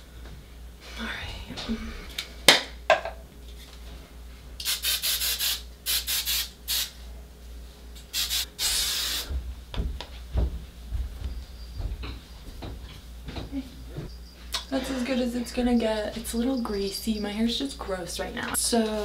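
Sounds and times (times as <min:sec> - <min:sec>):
aerosol can spraying: 0:04.6 - 0:07.0, 0:08.1 - 0:09.3.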